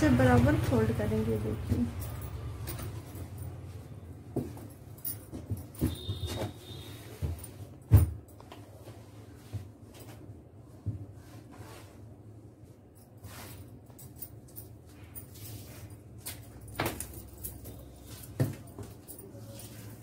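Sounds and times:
cloth rustling and sliding: 8.6s - 13.9s.

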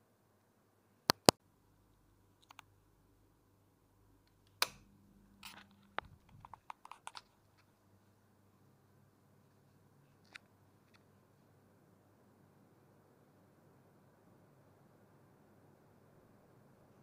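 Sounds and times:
wall switch clicks: 4.5s - 4.9s.

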